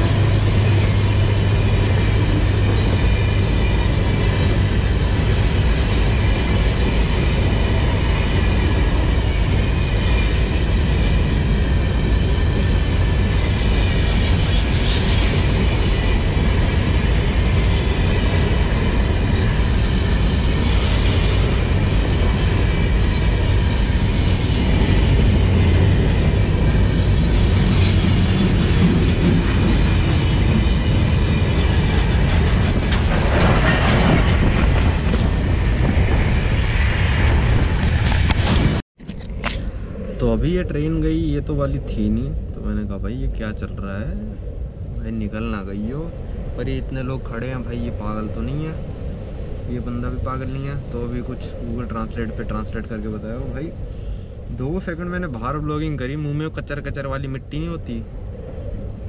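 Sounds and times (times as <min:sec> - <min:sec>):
train wagons clanking: 0:00.0 - 0:36.2
train wheels rumbling on rails: 0:00.0 - 0:59.0.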